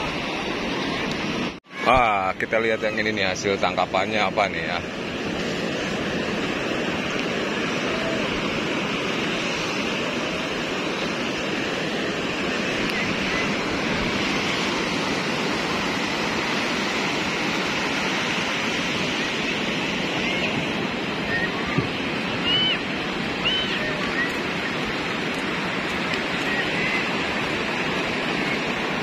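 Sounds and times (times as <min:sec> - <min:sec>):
ocean surf breaking on beach: 0:00.0 - 0:29.0.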